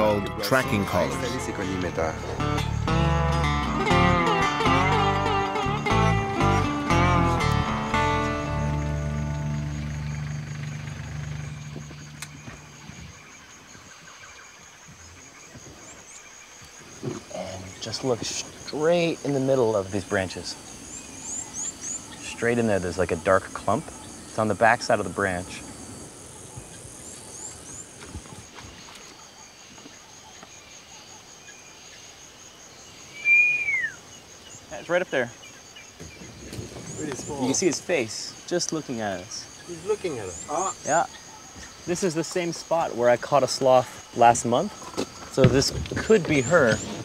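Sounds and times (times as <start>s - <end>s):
insects buzzing: 0.0s - 47.0s
outboard motor running: 8.6s - 12.6s
sharp tick: 12.1s - 12.4s
whistled bird call: 33.0s - 34.1s.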